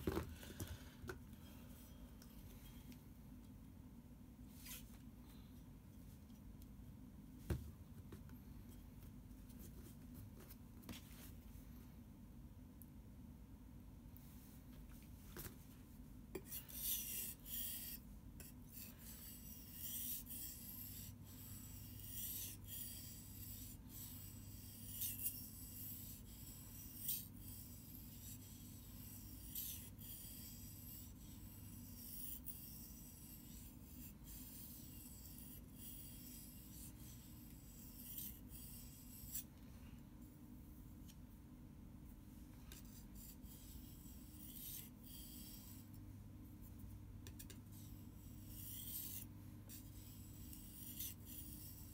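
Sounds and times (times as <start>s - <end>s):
knife scraping on whetstone: 16.4s - 39.5s, 42.8s - 45.9s, 47.4s - 51.9s.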